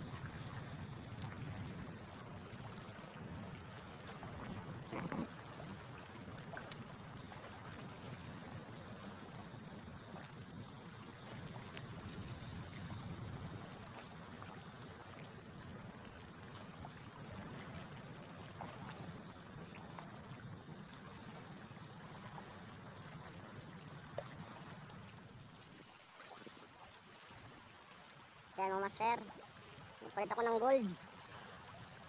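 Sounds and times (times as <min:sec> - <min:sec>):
small waves lapping: 0:00.0 - 0:32.0
faint ticks: 0:06.4 - 0:06.9, 0:11.7 - 0:12.0.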